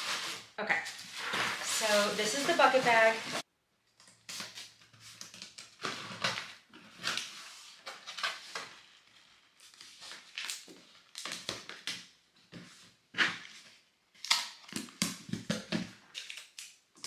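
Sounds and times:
tissue paper crinkling: 0.0 - 3.4.

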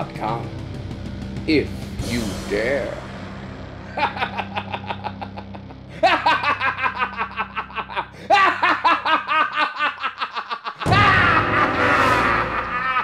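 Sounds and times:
man laughing loudly: 3.8 - 13.0.

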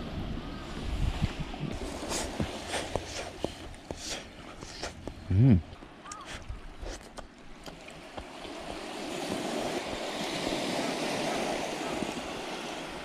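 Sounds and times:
wave hissing on pebble beach: 1.7 - 5.0, 8.6 - 13.0.

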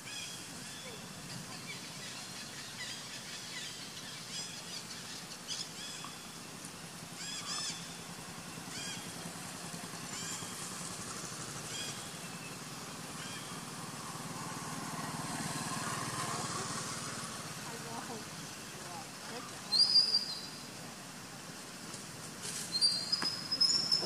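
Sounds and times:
engine humming: 0.0 - 24.0
high-pitched chirping calls: 7.2 - 8.0, 19.6 - 20.7, 22.7 - 24.0.

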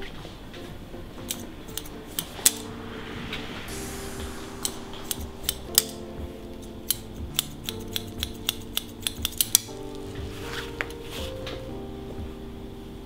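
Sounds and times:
soft background music: 0.0 - 13.0
brief hiss: 2.2 - 7.1
scissors snipping hair: 6.9 - 9.7.

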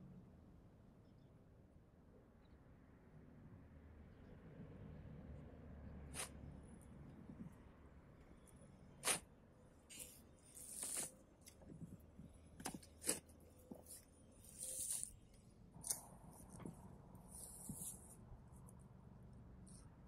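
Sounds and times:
digging tool striking soil: 6.1 - 6.4, 9.0 - 9.3.

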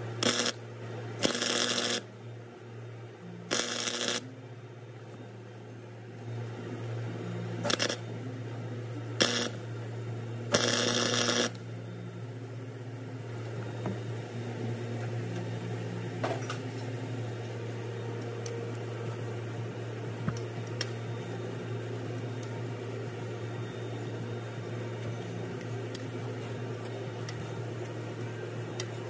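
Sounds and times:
steady low hum: 0.0 - 29.0
welder crackling bursts: 0.2 - 0.6, 1.2 - 2.1, 3.5 - 4.2, 7.6 - 8.0, 9.2 - 9.6, 10.5 - 11.6.

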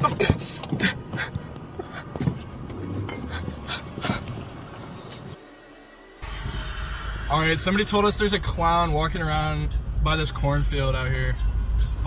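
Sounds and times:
person panting heavily: 0.1 - 5.4.

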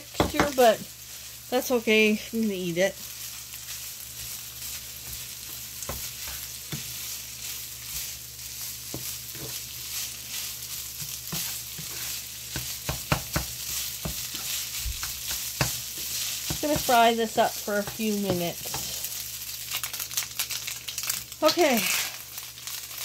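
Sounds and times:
food sizzling in a skillet: 0.0 - 23.0
spatula scraping and tapping pan: 0.1 - 0.9, 3.6 - 19.1.

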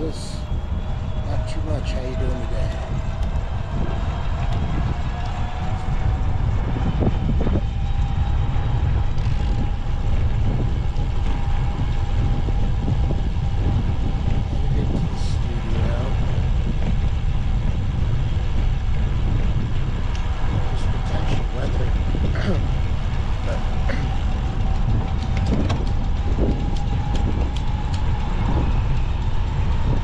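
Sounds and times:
faint steady whine: 0.0 - 30.0
wind and road rumble: 0.0 - 30.0.

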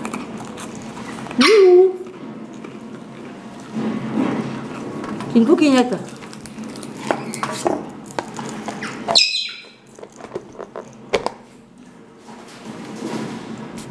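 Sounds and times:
parrot squawk: 8.8 - 9.8.

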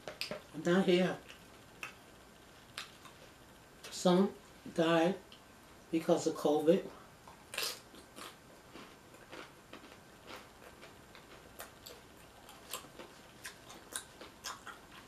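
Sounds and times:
person chewing food: 7.2 - 15.0.

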